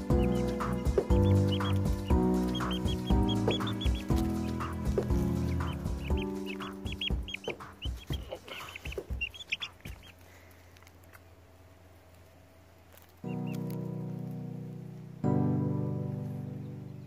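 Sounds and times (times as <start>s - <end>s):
young chicken peeping: 0.0s - 11.3s, 12.8s - 14.4s.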